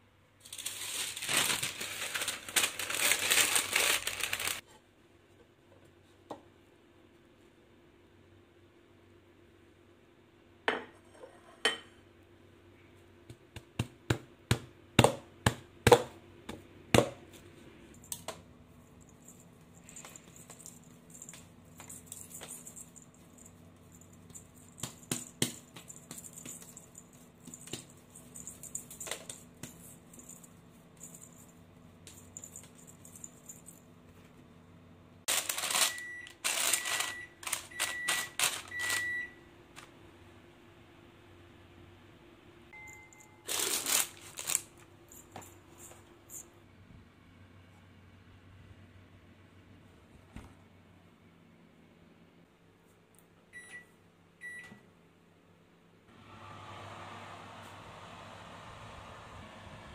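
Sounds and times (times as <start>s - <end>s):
parchment paper crinkling: 0.4s - 4.6s, 35.3s - 39.0s, 43.5s - 44.9s.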